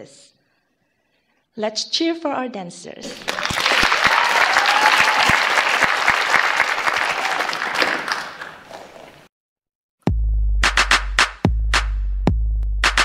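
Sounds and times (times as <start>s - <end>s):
audience applause: 3.1s - 9.2s
hip-hop track with heavy bass: 10.1s - 13.0s.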